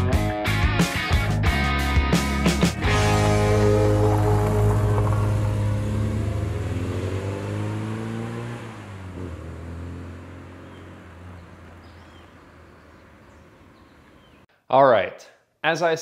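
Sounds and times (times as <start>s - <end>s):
car engine accelerating: 2.4s - 14.3s.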